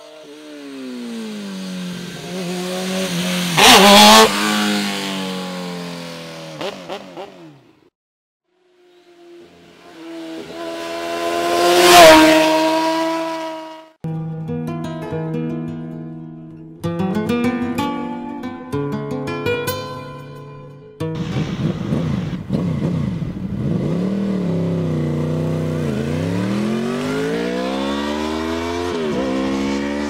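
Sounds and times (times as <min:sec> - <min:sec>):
motorbikes passing at high speed: 0:00.0 - 0:07.6, 0:08.8 - 0:14.0, 0:21.2 - 0:30.0.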